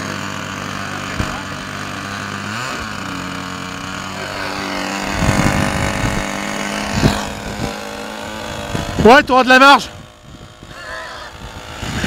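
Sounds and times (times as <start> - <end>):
model airplane engine idling: 0.0 - 12.0.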